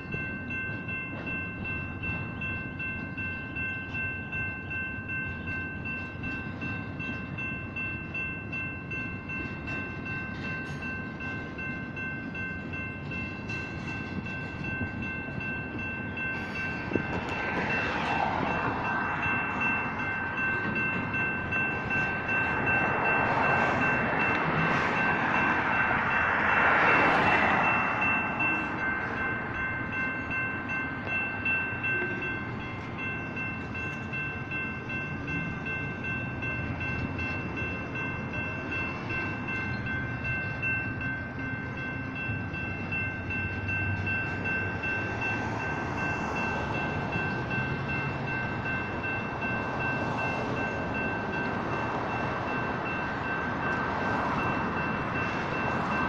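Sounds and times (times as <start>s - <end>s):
freight train rumbling past: 0.0s - 56.0s
railroad crossing bells ringing: 0.0s - 56.0s
rushing noise of passing cars: 16.0s - 32.5s.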